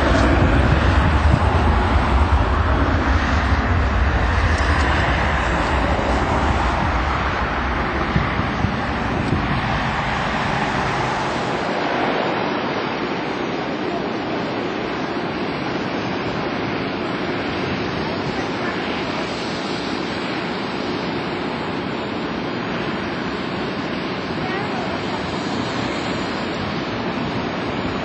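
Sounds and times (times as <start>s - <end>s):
jet engine roar: 0.0s - 28.0s.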